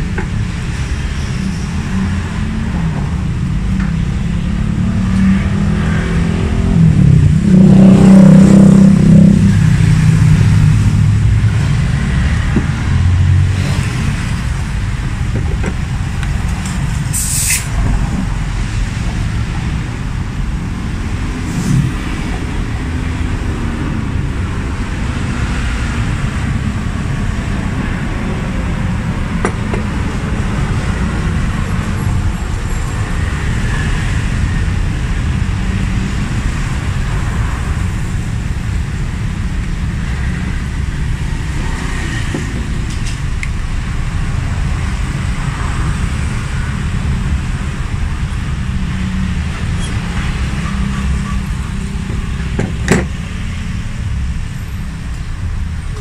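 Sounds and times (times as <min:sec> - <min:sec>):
vehicle engine low rumble: 0:00.0 - 0:56.0
brief hiss: 0:17.1 - 0:17.7.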